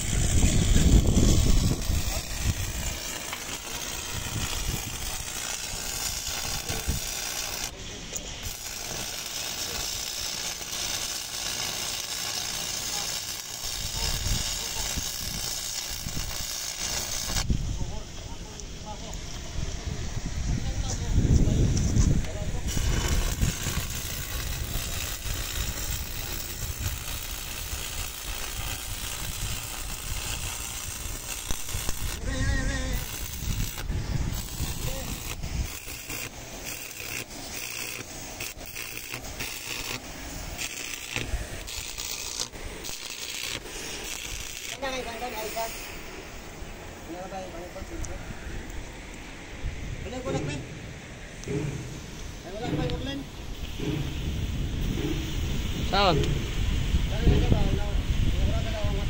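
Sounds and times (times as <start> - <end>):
welding arc crackling: 0.0 - 17.5, 22.2 - 46.1.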